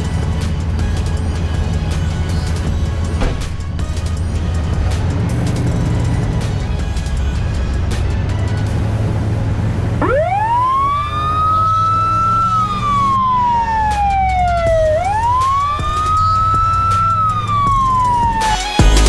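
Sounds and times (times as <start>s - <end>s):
fire truck siren wailing: 0.0s - 19.0s
music: 0.0s - 19.0s.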